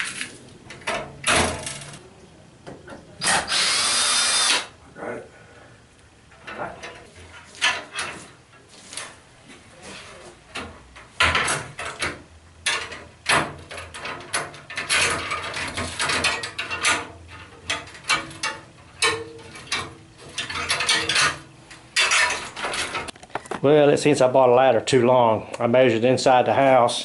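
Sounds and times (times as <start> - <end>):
metal ladder clicks and rattles: 0.0 - 2.0, 6.4 - 9.2, 10.5 - 23.2.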